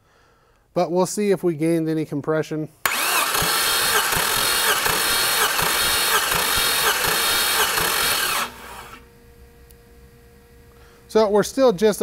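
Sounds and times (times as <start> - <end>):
starter motor cranking engine: 2.9 - 9.0.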